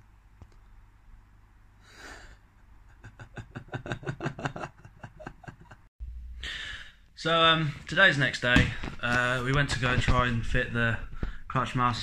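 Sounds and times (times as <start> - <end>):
background hum: 0.0 - 12.0
person laughing quietly: 2.8 - 5.8
short breath: 6.4 - 7.0.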